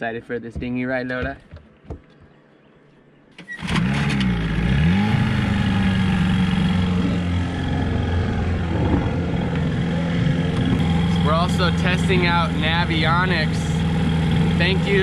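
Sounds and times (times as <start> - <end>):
outboard motor starting and idling: 3.4 - 15.0.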